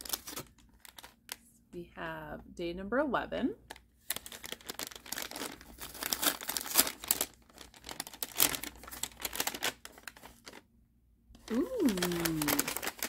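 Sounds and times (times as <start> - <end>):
paper bag crinkling: 0.0 - 1.4, 3.7 - 10.6, 11.4 - 13.0.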